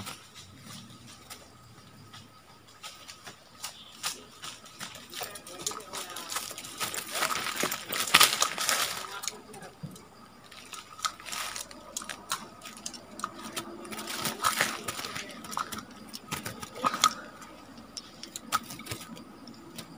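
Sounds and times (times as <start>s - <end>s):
wire cage clicking and rattling: 0.0s - 19.9s
bird fluttering against wires: 10.4s - 19.9s.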